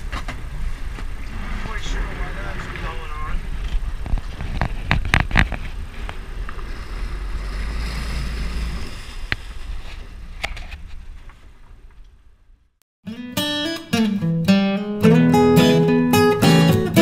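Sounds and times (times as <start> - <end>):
wind on microphone: 0.0 - 11.6
boat engine rumble: 0.0 - 12.8.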